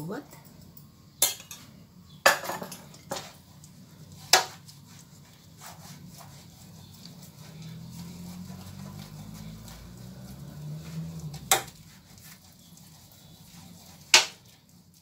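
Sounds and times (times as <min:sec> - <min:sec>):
cookware clanking: 0:01.2 - 0:03.3.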